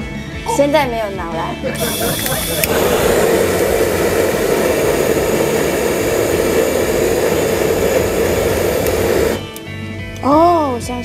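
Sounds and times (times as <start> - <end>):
gas torch hissing: 1.8 - 9.6.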